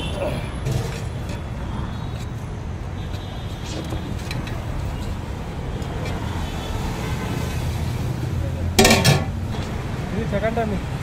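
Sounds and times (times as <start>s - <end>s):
street traffic rumble: 0.0s - 11.0s
steel cookware clang: 8.8s - 9.4s.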